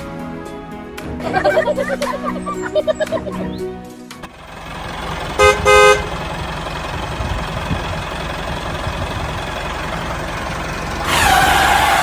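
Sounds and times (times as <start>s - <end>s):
tractor engine idling: 1.0s - 12.0s
short horn honks: 5.4s - 6.1s.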